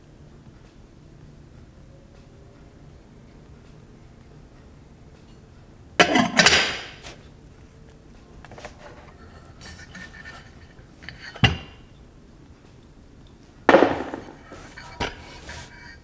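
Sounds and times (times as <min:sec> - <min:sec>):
metal kettle lid clanking: 0:06.0 - 0:07.1, 0:11.0 - 0:11.8.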